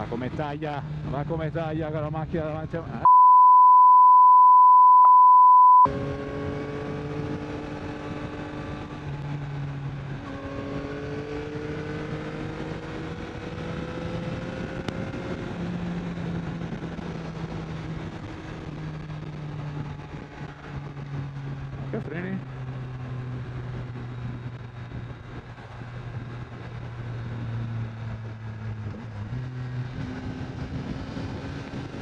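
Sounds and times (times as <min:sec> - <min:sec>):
censor beep: 0:03.0 - 0:05.9
motorcycle engine cruising: 0:05.9 - 0:32.0.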